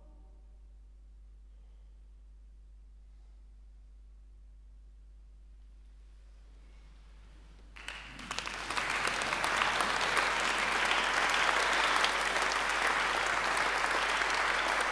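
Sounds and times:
audience applause: 0:07.8 - 0:14.9.

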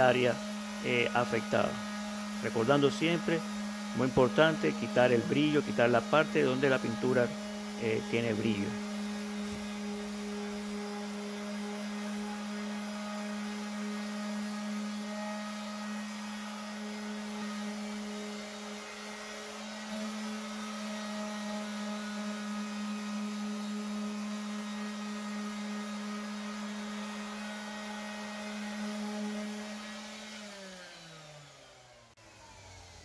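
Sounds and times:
orbital sander grinding paint: 0:00.0 - 0:33.0.

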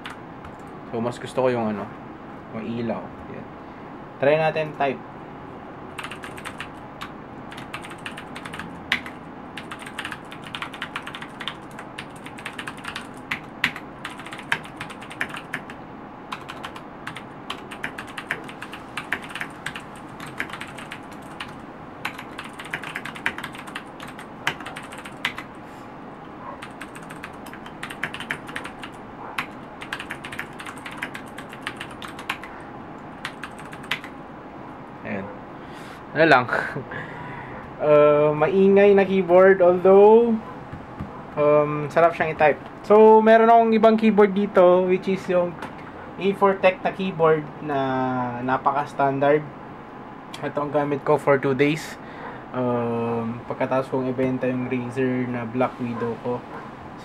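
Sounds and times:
clicky mechanical keyboard typing: 0:06.0 - 0:25.5, 0:26.6 - 0:32.6, 0:33.2 - 0:34.2.

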